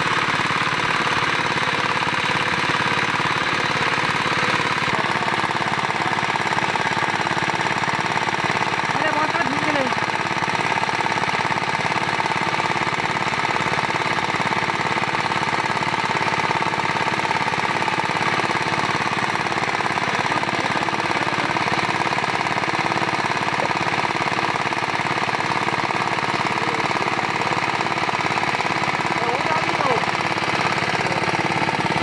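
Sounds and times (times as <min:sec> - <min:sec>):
small engine knocking: 0:00.0 - 0:32.0.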